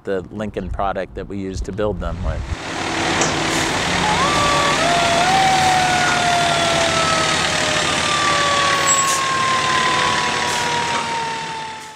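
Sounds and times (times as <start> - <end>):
engine and road noise: 1.6 - 11.9
siren winding down: 2.7 - 11.9.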